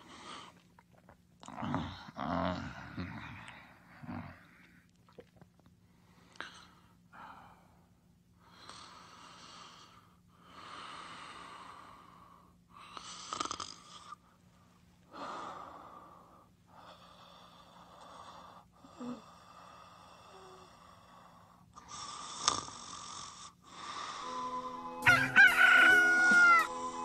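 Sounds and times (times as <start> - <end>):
snoring and heavy breathing: 1.6 - 4.6, 8.6 - 14.2, 15.1 - 24.4.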